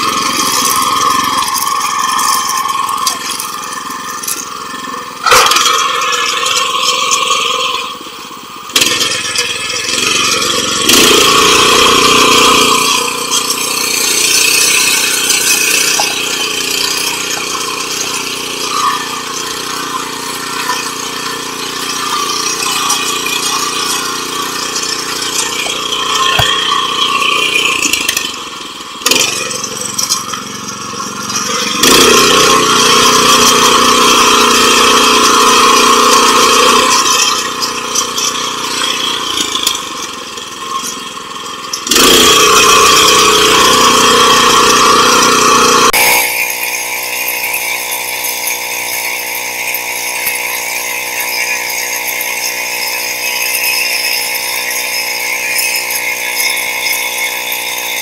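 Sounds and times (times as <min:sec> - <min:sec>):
engine rattle: 0:00.0 - 0:58.0
tiller engine revving: 0:00.0 - 0:58.0.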